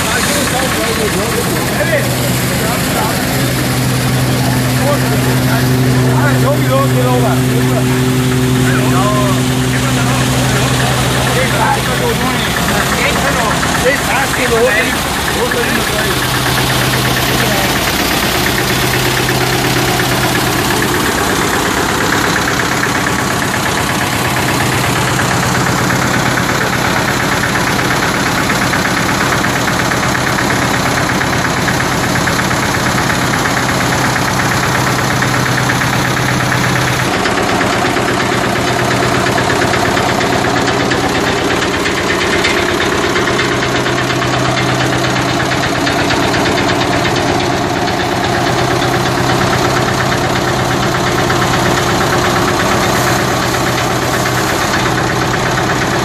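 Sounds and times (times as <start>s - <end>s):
diesel tractor engine knocking: 0.0s - 56.0s.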